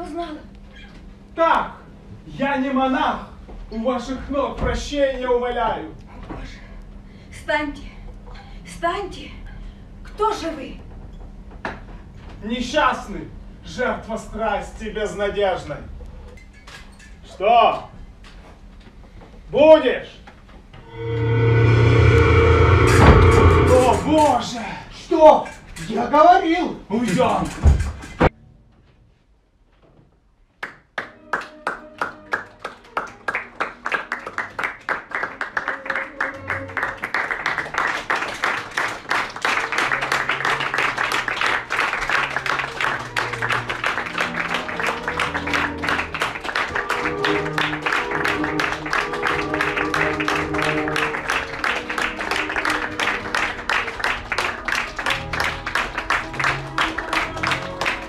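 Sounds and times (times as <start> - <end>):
music playing: 20.9 - 24.5, 39.6 - 58.0
audience applauding: 31.0 - 58.0.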